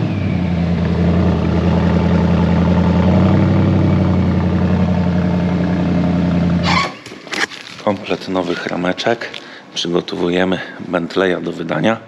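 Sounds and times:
car engine idling: 0:00.0 - 0:06.8.

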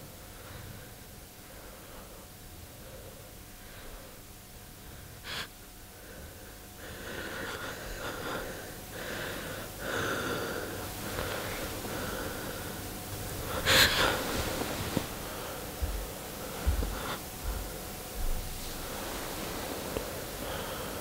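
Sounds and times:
person breathing hard: 0:00.3 - 0:21.0.

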